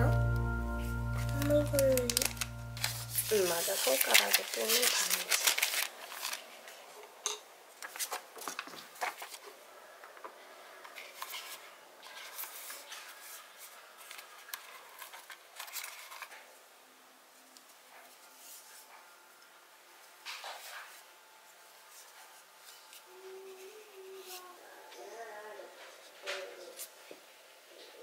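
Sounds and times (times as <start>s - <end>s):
plastic film rustling: 0.8s - 6.9s, 7.8s - 9.5s, 11.0s - 16.5s.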